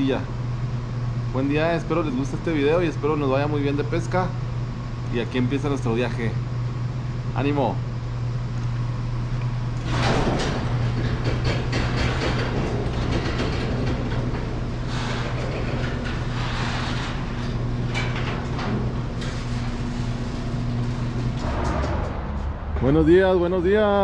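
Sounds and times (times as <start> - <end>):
garage door motor hum: 0.0 - 24.0
door rollers rattling and clicking: 9.8 - 22.1.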